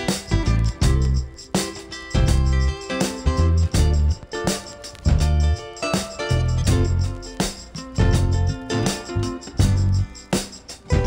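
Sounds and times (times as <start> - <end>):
instrumental background music: 0.0 - 11.0
bass line: 0.3 - 1.3, 2.2 - 4.4, 5.0 - 5.6, 6.3 - 7.3, 8.0 - 10.1.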